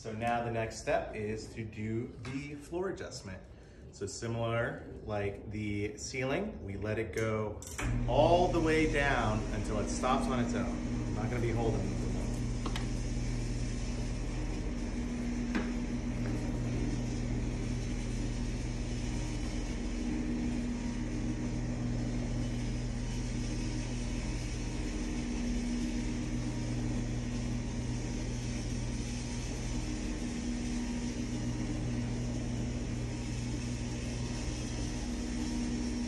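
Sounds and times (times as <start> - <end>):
electric motors humming: 7.8 - 36.0.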